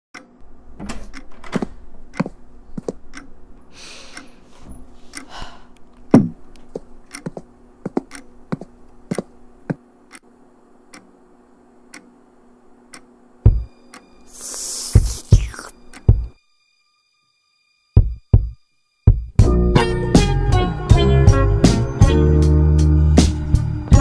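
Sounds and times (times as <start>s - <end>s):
faint steady hum: 0.2s - 19.1s
heavy thump: 6.2s - 6.4s
short hisses: 14.3s - 15.8s.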